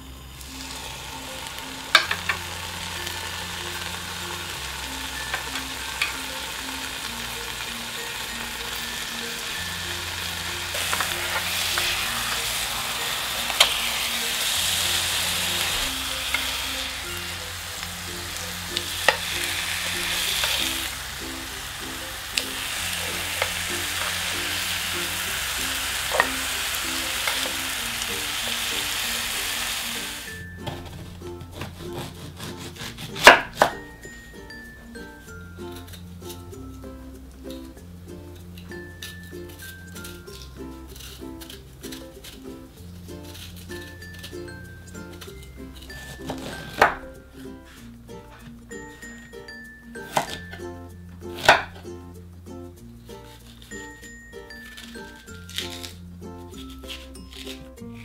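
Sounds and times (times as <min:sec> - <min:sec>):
meat sizzling in a frying pan: 0:00.5 - 0:30.4
metal tongs clicking on pan: 0:01.9 - 0:02.4.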